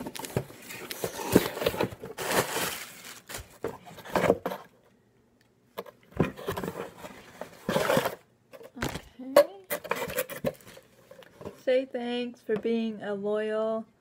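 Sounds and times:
packing rustling: 0.0s - 3.6s.

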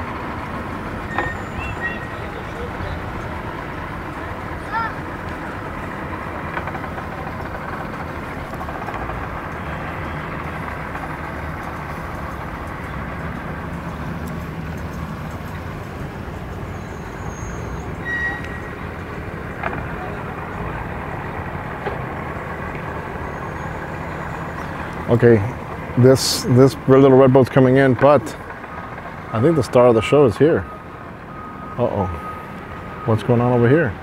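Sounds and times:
boat motors idling: 0.0s - 34.0s
brief high-pitched tone: 1.1s - 2.2s, 18.0s - 18.8s.

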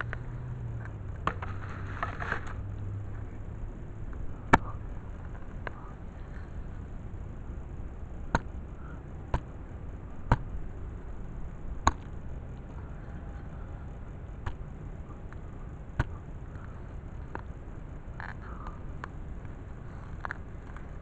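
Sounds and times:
digging tool chopping turf: 4.5s - 4.8s.

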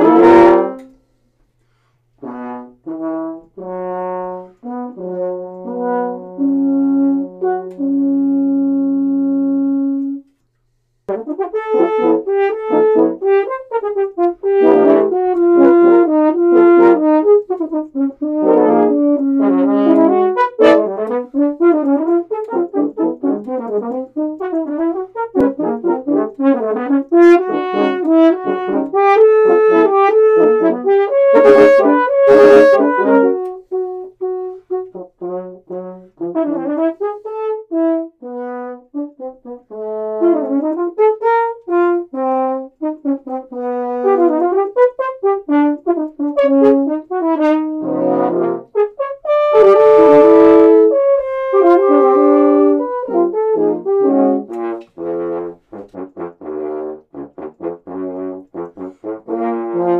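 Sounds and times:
french horns playing: 0.0s - 59.9s.

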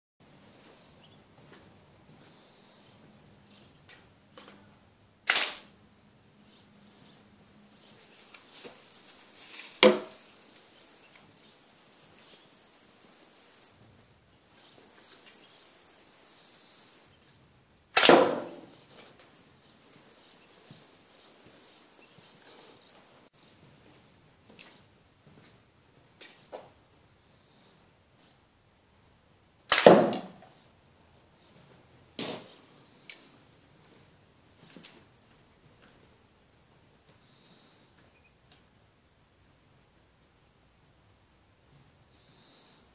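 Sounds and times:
loud sharp snaps: 5.3s - 5.7s, 18.0s - 18.6s, 29.7s - 30.3s.

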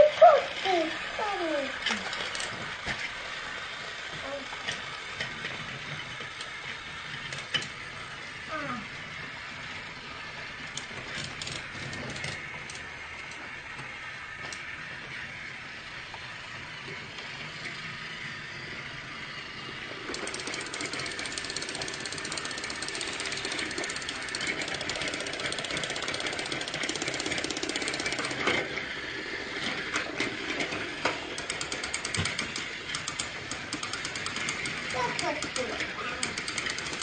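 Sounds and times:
toy train motor rattling buzz: 0.0s - 37.0s
sharp clicks and knocks: 29.6s - 37.0s.

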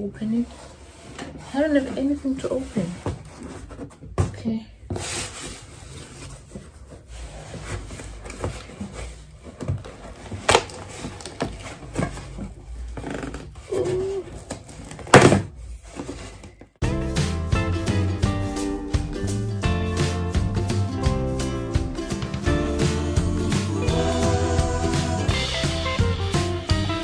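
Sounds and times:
cardboard box rustling and scraping: 0.4s - 4.2s, 4.9s - 16.7s
acoustic guitar music: 16.8s - 27.0s.

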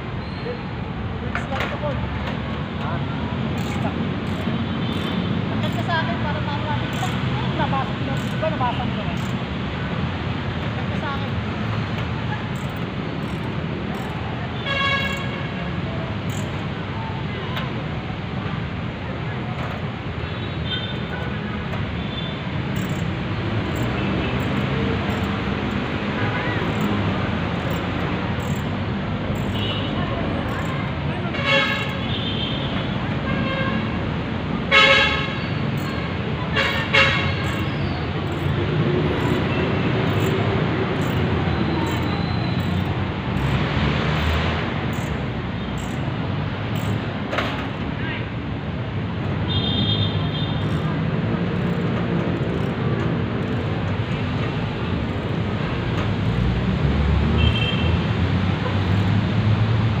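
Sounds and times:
road traffic: 0.0s - 60.0s
vehicle horns honking: 14.6s - 15.7s, 29.4s - 34.0s, 34.7s - 37.8s, 49.5s - 50.8s, 57.4s - 58.0s.

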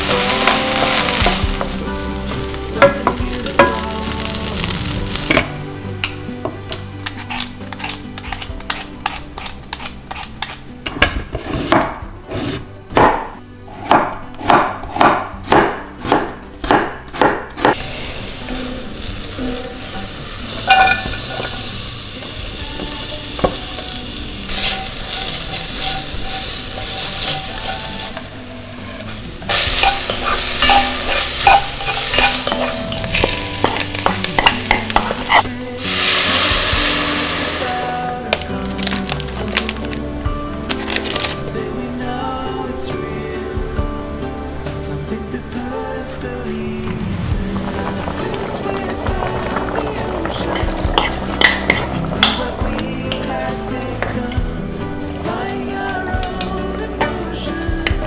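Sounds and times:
sweet potato sizzling in butter: 0.0s - 5.5s, 17.7s - 39.9s, 47.0s - 54.4s
knife chopping on wooden board: 13.8s - 17.8s
water pouring into pot: 35.8s - 38.0s, 47.2s - 52.8s.

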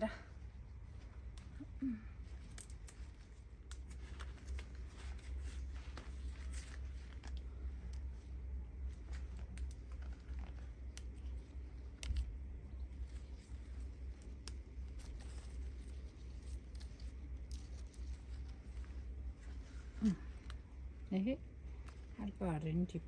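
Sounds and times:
steady low rumble: 0.0s - 23.0s.

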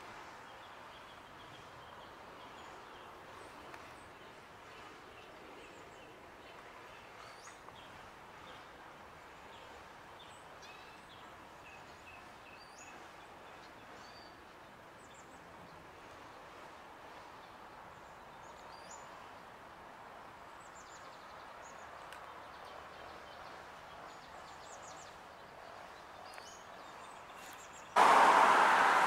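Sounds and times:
loud steady rushing noise: 28.0s - 29.0s.

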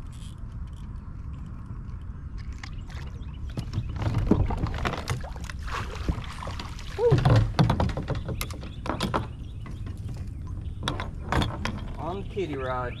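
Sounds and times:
steady low rumble: 0.0s - 3.7s
water splashing around kayak: 2.4s - 12.3s.

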